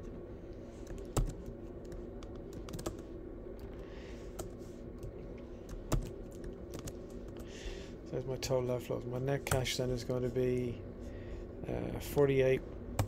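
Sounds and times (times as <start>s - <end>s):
steady low hum: 0.0s - 13.0s
computer keyboard typing: 0.8s - 3.0s, 5.7s - 7.4s.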